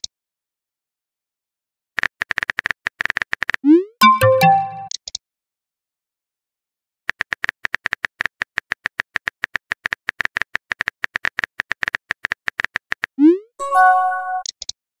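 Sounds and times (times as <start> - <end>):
rapid keyboard clicks: 2.0 - 3.6, 7.1 - 13.2.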